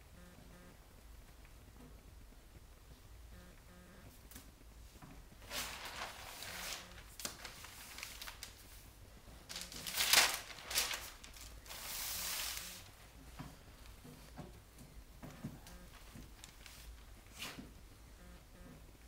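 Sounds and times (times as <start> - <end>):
felt and paper rustling: 5.4 - 14.5, 15.9 - 17.7
hand sliding across paper: 11.7 - 12.9.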